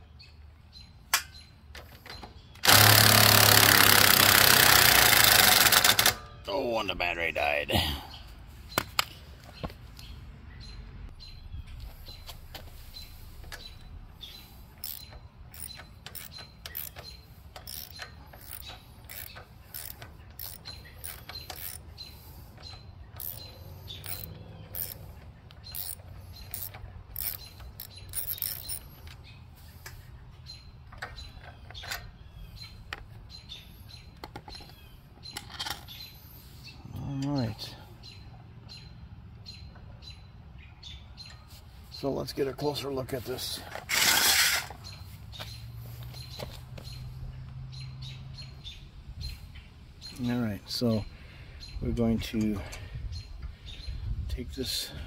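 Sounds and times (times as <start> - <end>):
ratchet wrench clicking: 2.6 - 6.2, 14.7 - 22.0, 22.6 - 29.2.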